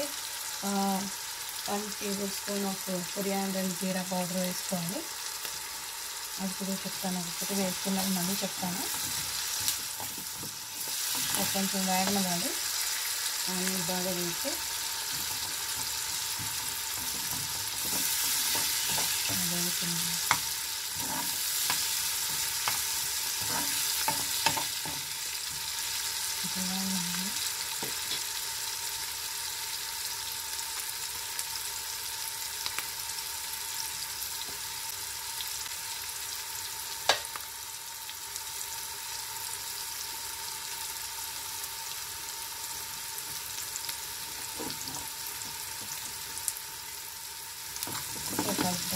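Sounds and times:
vegetables sizzling in hot oil: 0.0 - 48.9
spoon scraping against pan: 14.8 - 25.0.

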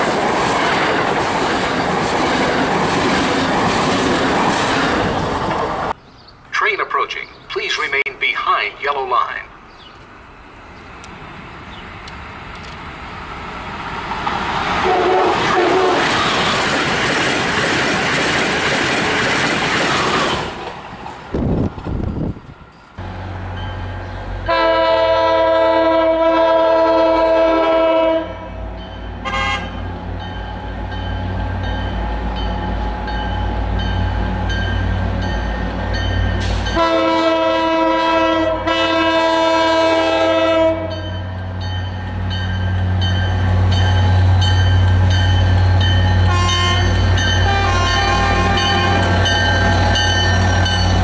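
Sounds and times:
train horn blasts: 14.8 - 16.6, 24.4 - 29.9, 36.7 - 41.1, 46.2 - 49.4.

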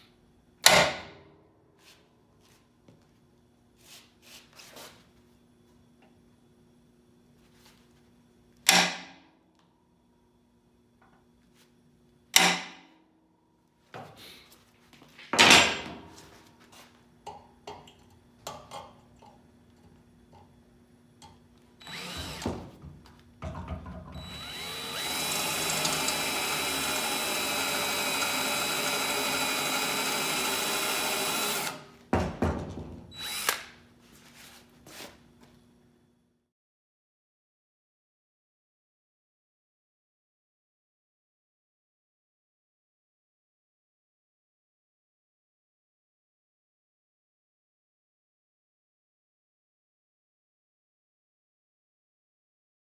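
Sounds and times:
cordless drill boring into steel: 21.8 - 22.6, 24.2 - 31.9, 33.1 - 33.7.

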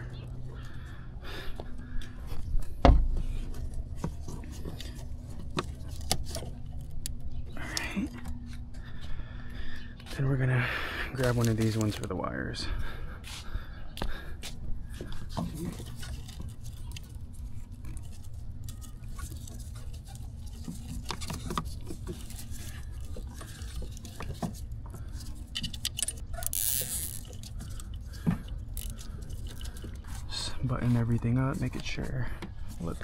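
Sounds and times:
plastic wiring clicks and rustles: 3.0 - 8.7, 11.2 - 12.2, 15.0 - 30.3
zip tie ratcheting: 25.6 - 27.8.

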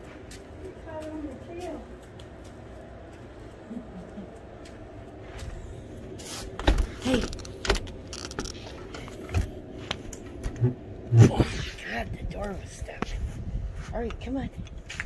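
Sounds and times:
door clunking open: 6.5 - 9.6.

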